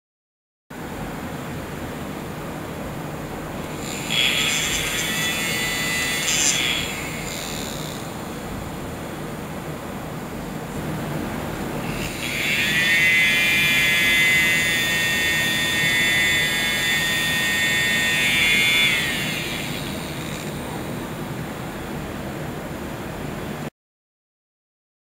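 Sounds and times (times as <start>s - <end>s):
small electric motor whining: 3.6s - 9.2s, 11.5s - 21.7s.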